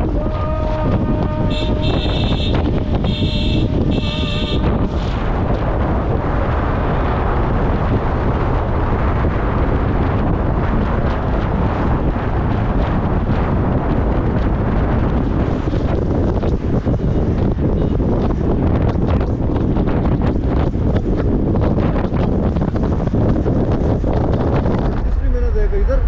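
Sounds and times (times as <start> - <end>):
car horn: 0.0 - 5.0
car road and wind rumble: 0.0 - 26.0.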